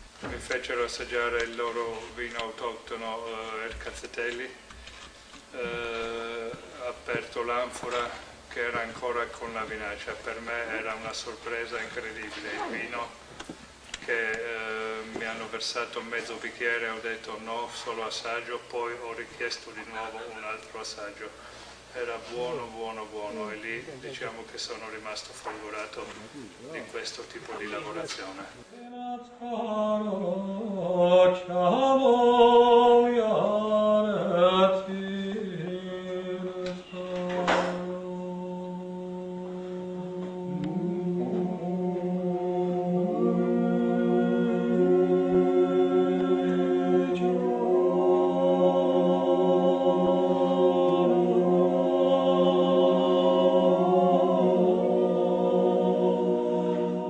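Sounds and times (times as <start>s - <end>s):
slow choral chanting: 0.0s - 13.3s, 27.1s - 57.0s
men singing in harmony: 5.5s - 12.9s, 28.7s - 57.0s.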